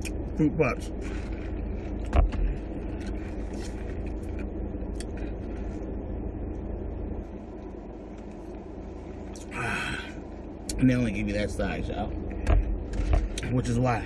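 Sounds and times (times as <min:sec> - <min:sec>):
car idling from inside cabin: 0:00.0 - 0:14.0.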